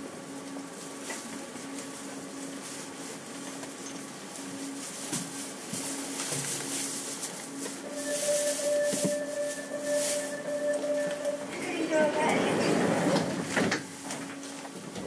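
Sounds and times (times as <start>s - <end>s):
steady equipment hiss: 4.2s - 12.2s.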